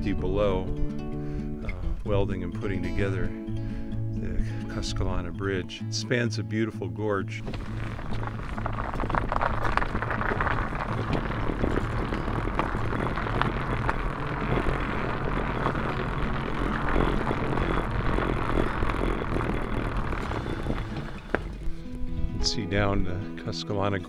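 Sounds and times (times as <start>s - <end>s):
wheels clicking on planks: 7.4s - 22.0s
bike tyres rolling over planks: 7.4s - 22.1s.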